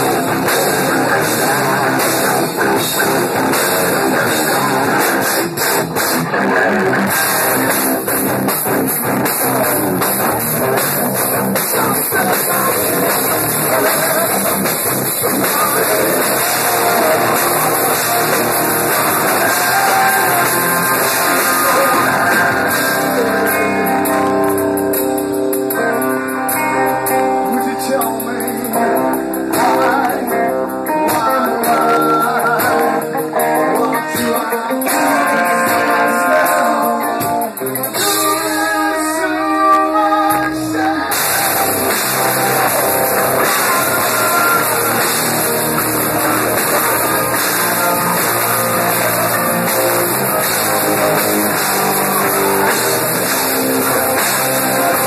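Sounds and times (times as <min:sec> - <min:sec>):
man singing into microphone: 0:00.0 - 0:02.9, 0:11.6 - 0:24.4, 0:27.3 - 0:49.8
guitar: 0:00.0 - 0:55.0.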